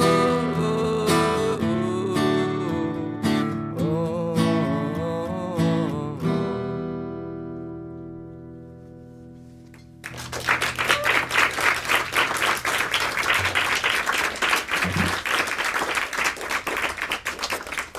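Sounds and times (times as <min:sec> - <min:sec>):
acoustic guitar chord ringing: 0:00.0 - 0:10.0
applause: 0:09.8 - 0:17.9.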